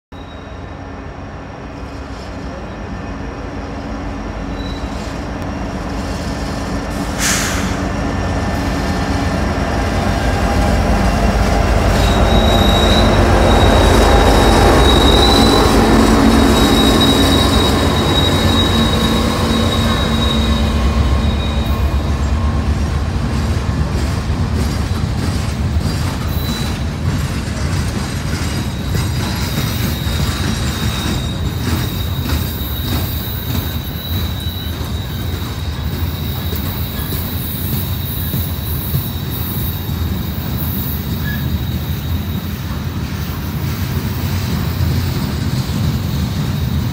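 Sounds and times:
diesel locomotive rumble: 0.2 - 46.9
high-pitched wheel squeal: 4.5 - 5.3, 11.7 - 22.5, 26.2 - 26.9, 28.4 - 43.6
train wheels clattering: 10.0 - 46.9.

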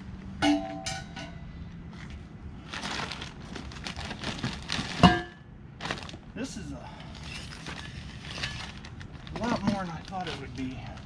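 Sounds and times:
plastic wrap rustling: 2.6 - 5.2, 5.8 - 6.3, 7.1 - 11.0.

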